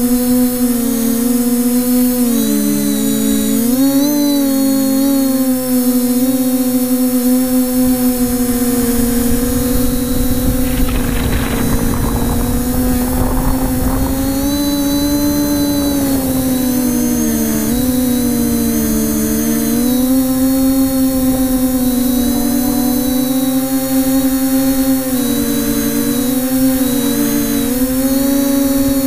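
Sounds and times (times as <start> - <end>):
drone propellers whining: 0.1 - 29.0
gusty rushing noise: 8.8 - 19.5.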